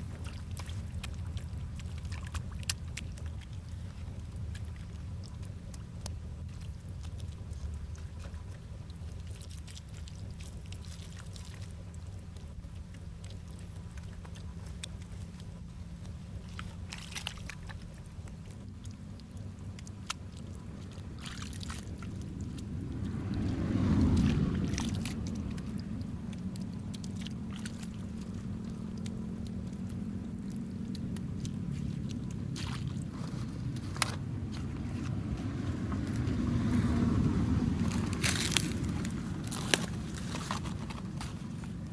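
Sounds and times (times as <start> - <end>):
low engine drone: 0.0 - 41.9
wet mud squelching: 0.0 - 41.9.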